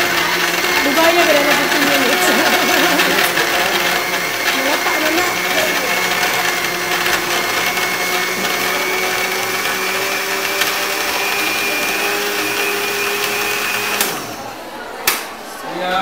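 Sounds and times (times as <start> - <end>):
electric blender running: 0.0 - 14.5.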